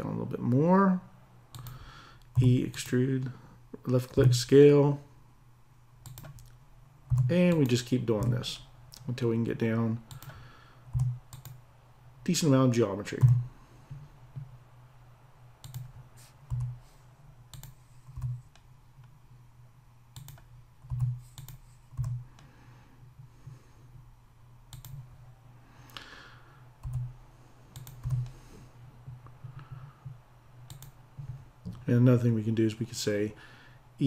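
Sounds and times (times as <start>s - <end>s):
keyboard and mouse clicking: 1.5s - 3.0s, 6.0s - 8.4s, 10.1s - 11.6s, 15.6s - 16.8s, 17.5s - 19.1s, 20.2s - 22.5s, 24.7s - 25.1s, 26.8s - 27.1s, 27.7s - 28.4s, 29.4s - 31.0s.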